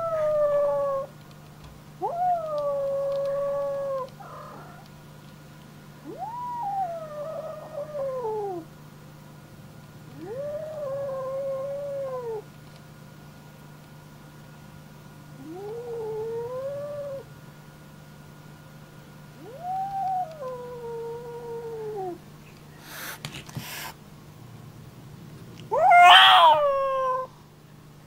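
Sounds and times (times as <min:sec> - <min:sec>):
steady low hum: 0:00.0 - 0:28.0
cat yowling: 0:02.0 - 0:04.9, 0:06.0 - 0:08.6, 0:19.4 - 0:22.1, 0:25.7 - 0:27.3.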